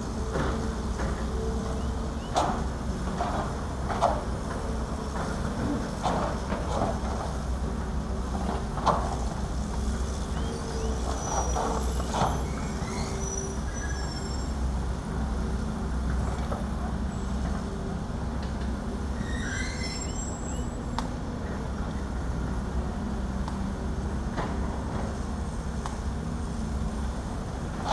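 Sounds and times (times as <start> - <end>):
diesel machines engine rumble: 0.0 - 27.9
brief high squeaks: 11.1 - 14.6, 19.2 - 20.8.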